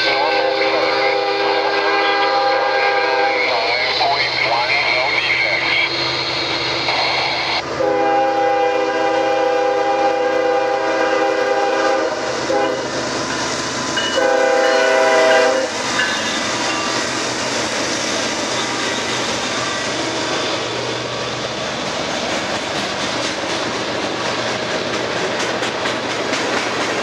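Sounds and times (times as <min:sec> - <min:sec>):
locomotive air horn blasts: 0:00.0 - 0:03.5, 0:07.8 - 0:12.8, 0:14.0 - 0:15.8
locomotive engines and wheels rumbling: 0:00.0 - 0:27.0.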